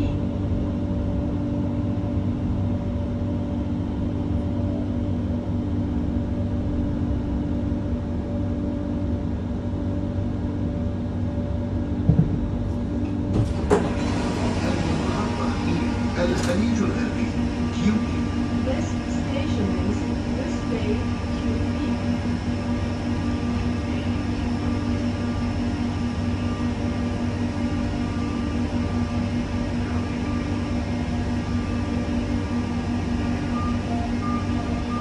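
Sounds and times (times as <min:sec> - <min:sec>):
metro train rumbling: 0:00.0 - 0:35.0
knocks: 0:12.0 - 0:12.5.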